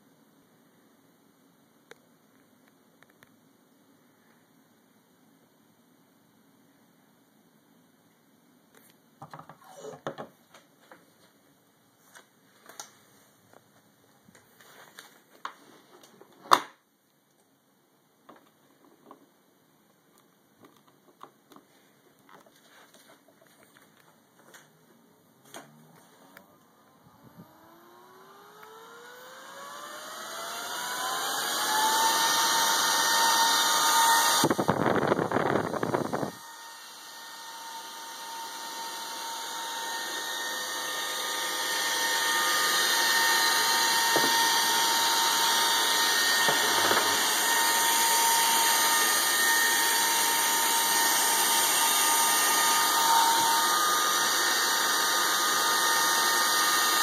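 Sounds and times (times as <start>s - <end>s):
cooling fan high whine: 25.5s - 57.0s.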